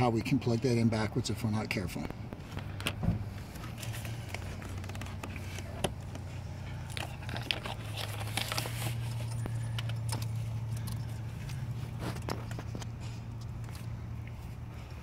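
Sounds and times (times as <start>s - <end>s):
low hum: 2.0s - 15.0s
arm rubbing foil-wrapped hose: 3.4s - 13.9s
plastic connector clicks and crinkles: 6.8s - 13.9s.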